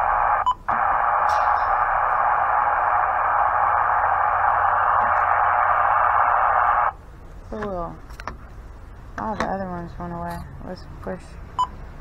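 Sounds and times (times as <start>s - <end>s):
radio static hiss: 0.0s - 7.0s.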